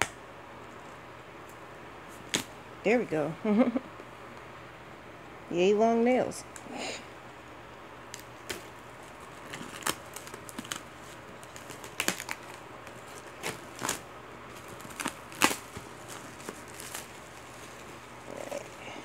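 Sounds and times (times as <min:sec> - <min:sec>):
plastic shrink-wrap crinkling: 0:08.2 - 0:19.0.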